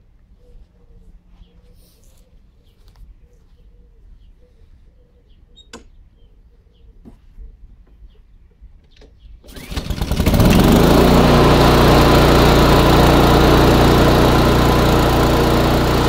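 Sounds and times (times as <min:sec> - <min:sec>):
small birds chirping: 0:00.2 - 0:09.6
pigeon cooing: 0:00.4 - 0:05.7.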